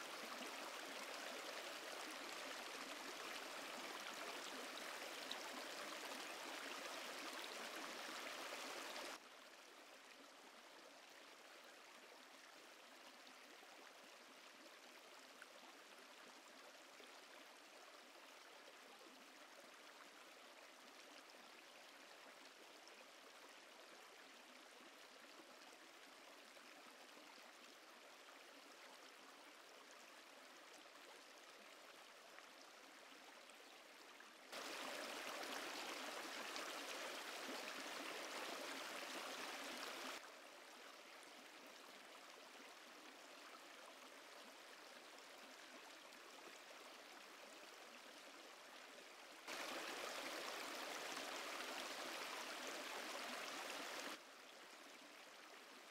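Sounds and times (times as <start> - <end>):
rushing river water: 0.0 - 9.2, 34.5 - 54.2.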